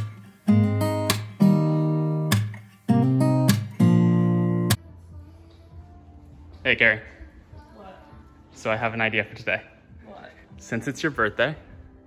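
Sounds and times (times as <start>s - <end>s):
strummed acoustic guitar chords: 0.0s - 4.8s.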